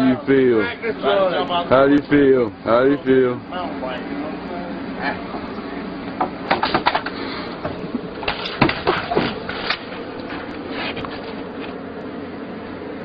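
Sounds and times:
bike clattering on wooden deck: 6.2s - 10.4s
bike crashing onto concrete: 8.2s - 9.9s.

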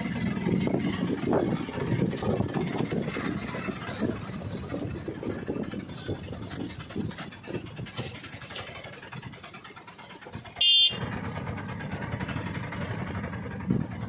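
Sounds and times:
small engine running: 0.0s - 14.0s
high-pitched horn blast: 10.6s - 11.1s.

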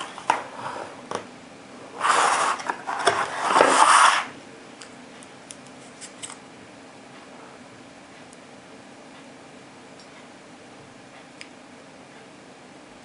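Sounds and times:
plastic tray scraping and rustling: 2.0s - 4.4s.

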